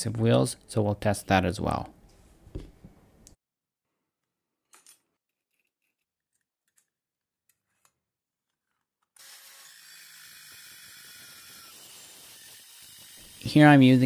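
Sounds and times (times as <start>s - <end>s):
circular saw running: 9.2s - 14.0s.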